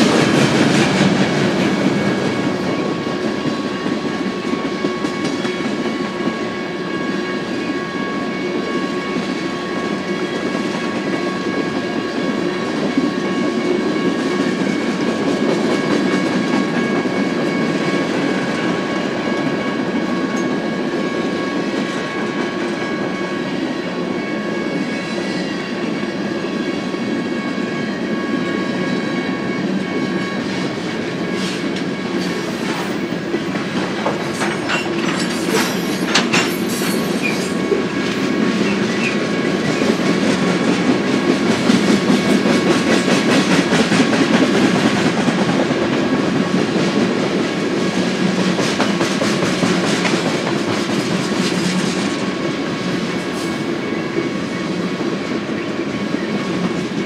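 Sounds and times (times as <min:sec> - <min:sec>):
train wheels clicking over rail joints: 0:00.0 - 0:06.4, 0:31.3 - 0:53.7.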